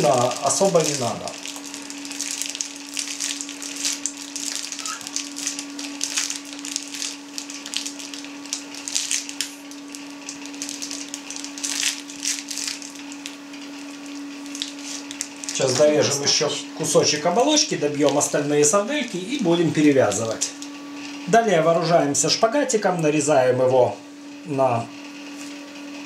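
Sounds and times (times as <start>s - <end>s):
sausage stuffer crackling and rustling: 0.0s - 16.4s, 17.1s - 20.7s
steady low hum: 0.0s - 26.0s.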